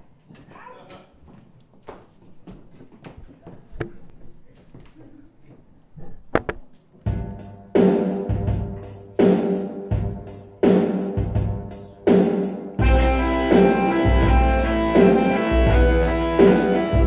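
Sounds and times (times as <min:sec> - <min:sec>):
live music with ringing chords: 0:07.2 - 0:17.0
heavy low bass: 0:12.8 - 0:17.0.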